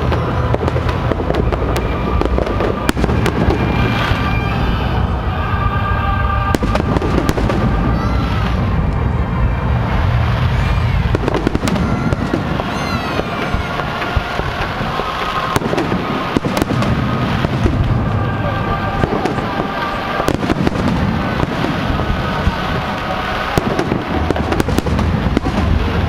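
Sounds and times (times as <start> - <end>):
fireworks shells bursting: 0.0 - 5.1
continuous low rumble: 0.0 - 26.0.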